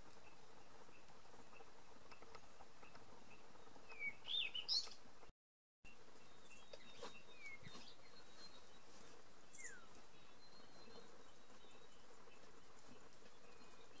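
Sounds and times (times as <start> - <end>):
birds chirping: 0.0 - 5.3, 5.9 - 14.0.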